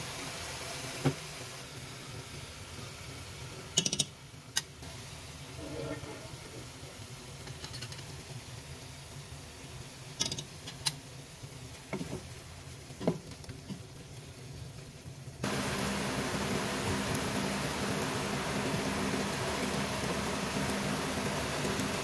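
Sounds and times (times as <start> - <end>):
low background hum: 15.4 - 22.0.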